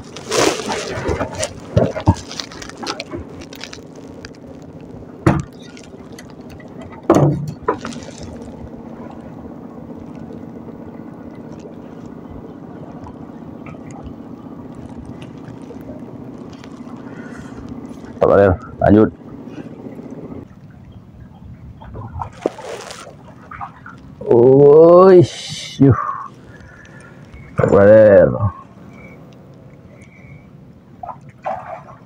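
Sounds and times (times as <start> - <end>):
clattering and rustling: 0.0 - 10.4
steady low hum: 0.0 - 32.0.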